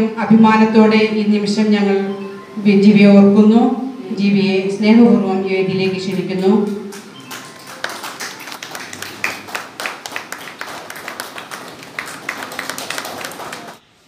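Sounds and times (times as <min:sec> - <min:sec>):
audience applauding: 0:06.8 - 0:13.8.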